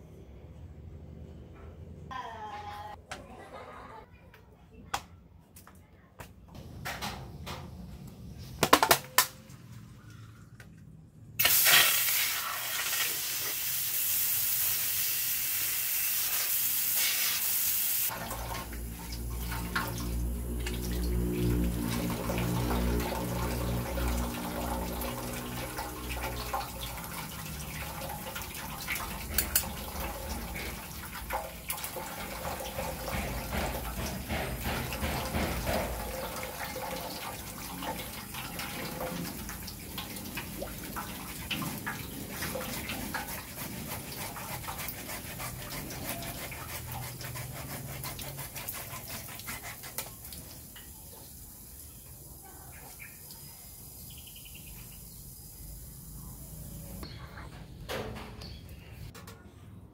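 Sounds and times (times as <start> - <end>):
water splashing into metal basin: 18.1 - 52.0
knife sawing plastic pipe: 42.6 - 50.1.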